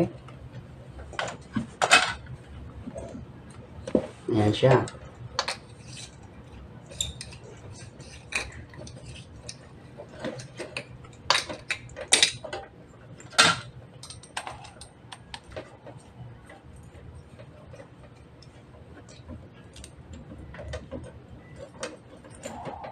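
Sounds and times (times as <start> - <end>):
clicks taps and light clatter: 6.9 - 22.9.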